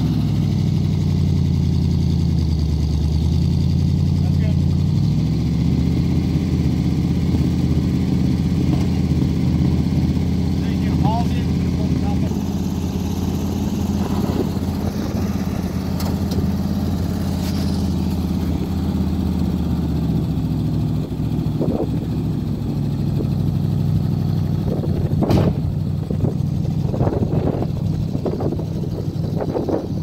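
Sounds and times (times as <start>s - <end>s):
vehicle engine running: 0.0s - 30.0s
wind noise on microphone: 14.0s - 15.6s, 21.5s - 22.0s, 24.6s - 30.0s
sharp clunk: 25.2s - 25.7s.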